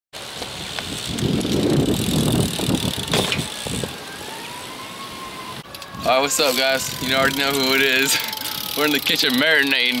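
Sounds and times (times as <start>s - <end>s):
bike tyres rolling on asphalt: 0.2s - 10.0s.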